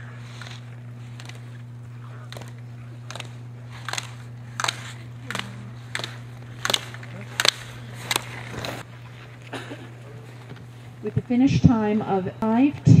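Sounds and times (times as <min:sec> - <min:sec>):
steady low hum: 0:00.0 - 0:13.0
skis hitting gates: 0:02.3 - 0:08.8.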